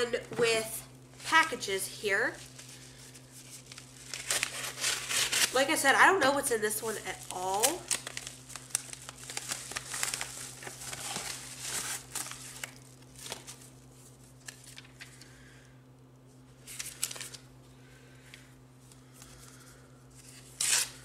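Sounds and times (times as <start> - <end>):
envelope crinkling and rustling: 2.4 - 5.6, 6.8 - 15.2, 16.6 - 17.5.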